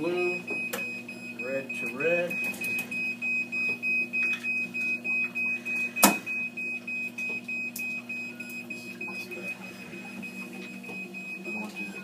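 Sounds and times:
low steady hum: 0:00.0 - 0:12.0
machine alarm beeping: 0:00.0 - 0:12.0.

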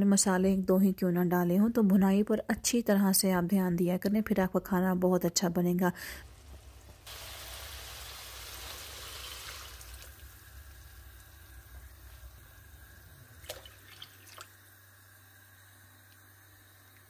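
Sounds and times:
watery hiss of cooking pot: 0:05.9 - 0:13.9.

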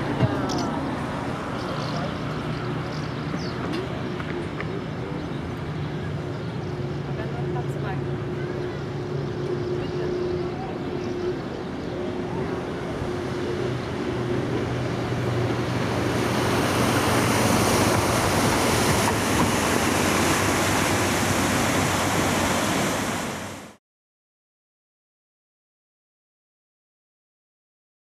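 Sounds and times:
barge engine hum: 0:00.0 - 0:23.8
rushing noise: 0:12.1 - 0:23.8.

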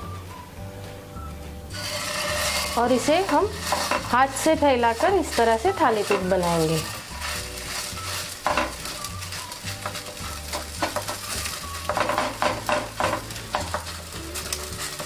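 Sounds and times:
oil sizzling faintly: 0:00.0 - 0:15.0
fingers patting dough: 0:04.8 - 0:15.0.

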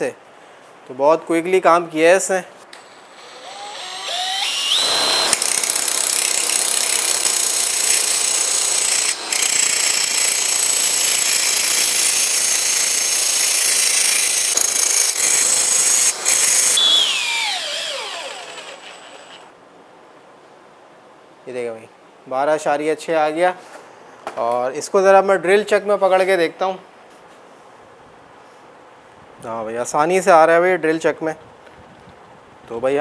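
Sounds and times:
angle grinder whine: 0:02.8 - 0:19.5
grinder grinding metal shaft: 0:03.1 - 0:19.5.

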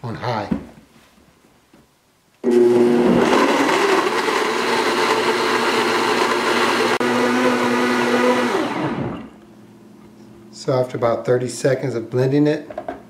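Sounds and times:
blender motor whine: 0:02.4 - 0:09.4.

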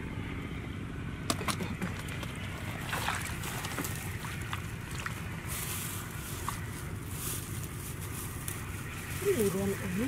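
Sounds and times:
light splashes: 0:01.3 - 0:06.6
hands in wet grass and mud: 0:01.3 - 0:10.0.

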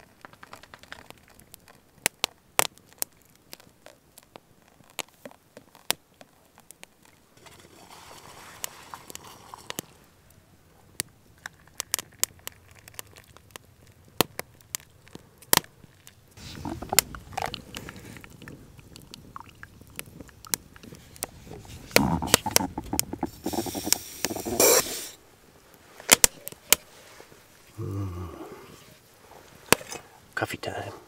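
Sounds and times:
scraping: 0:07.3 - 0:10.2, 0:16.4 - 0:19.2
coffee press hissing: 0:21.9 - 0:25.2.

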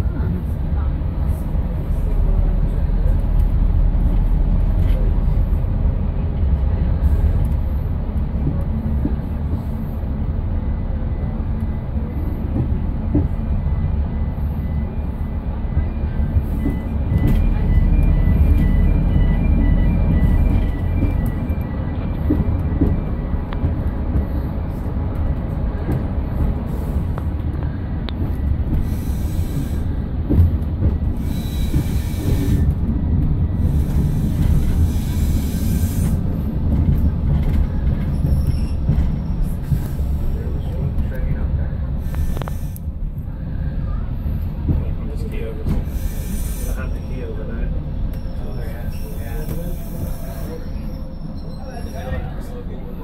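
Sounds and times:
train engine rumble: 0:00.0 - 0:53.0.

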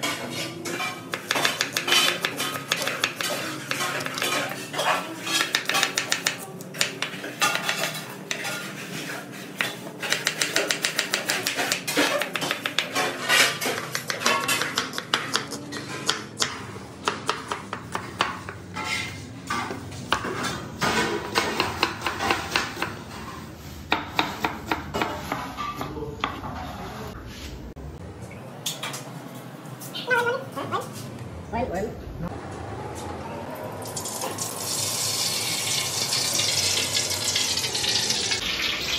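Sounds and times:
knife chopping on wooden board: 0:09.6 - 0:13.1.

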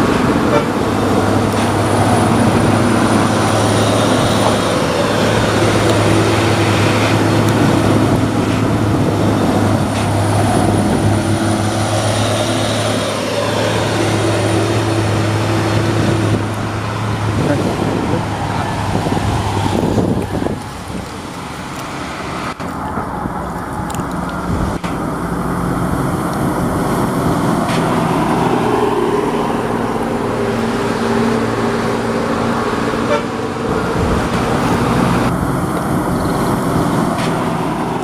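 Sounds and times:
horn-like tone: 0:33.0 - 0:33.4.

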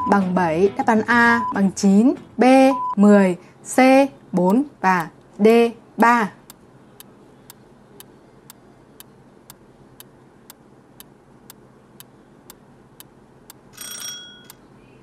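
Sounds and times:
clock ticking: 0:04.5 - 0:05.1
short ringing tones: 0:13.7 - 0:14.6.

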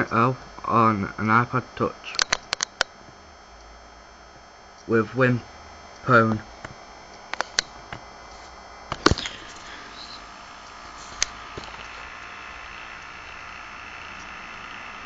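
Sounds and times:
steady background hiss: 0:00.0 - 0:15.0
camera handling clicks: 0:07.3 - 0:07.7.

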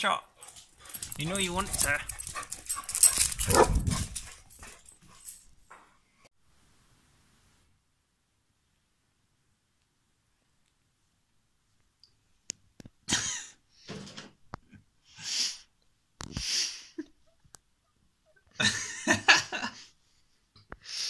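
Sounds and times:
woman stifled laughter: 0:18.5 - 0:19.8.

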